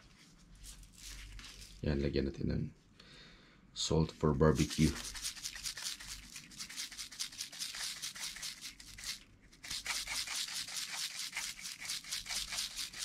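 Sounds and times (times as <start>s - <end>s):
hands rubbing salt over duck: 4.5s - 13.0s.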